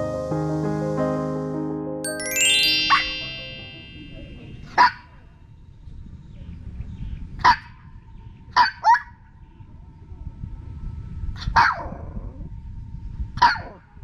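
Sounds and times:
small dog yapping: 11.6 - 11.9, 13.4 - 13.8.

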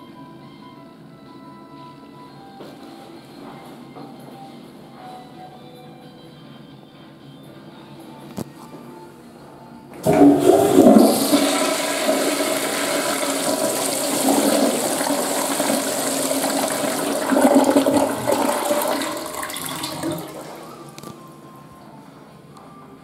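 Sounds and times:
toilet flushing: 10.0 - 20.9.

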